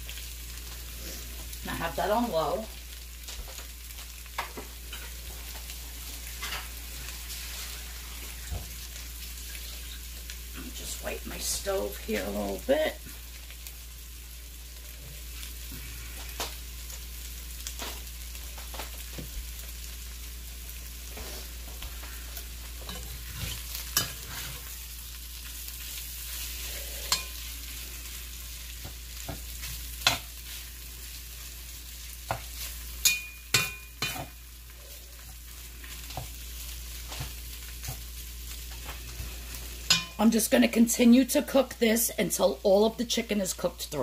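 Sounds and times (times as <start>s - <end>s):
chicken frying sizzle: 0.0s - 44.0s
spoon clinking and scraping pot: 27.0s - 27.5s, 32.3s - 34.4s, 39.8s - 40.2s.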